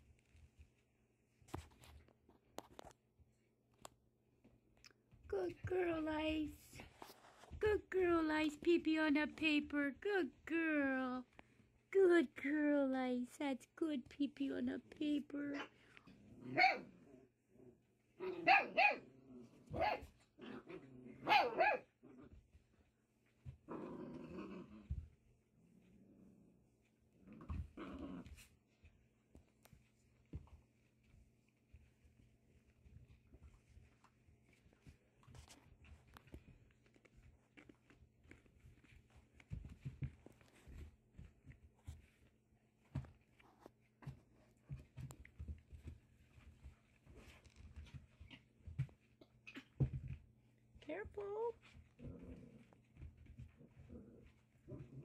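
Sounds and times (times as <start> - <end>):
patter of paws: 0.0 - 10.0, 11.2 - 11.9, 15.6 - 55.0
puppies scuffling and thumping: 0.0 - 10.5, 22.2 - 23.7, 24.6 - 26.0, 26.6 - 55.0.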